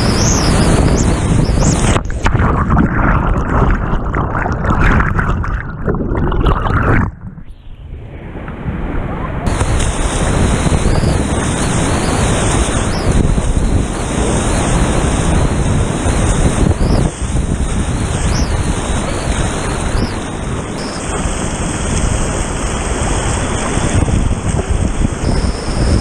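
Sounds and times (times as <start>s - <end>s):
wind buffeting microphone: 0.0s - 26.0s
whitewater rushing: 9.5s - 26.0s.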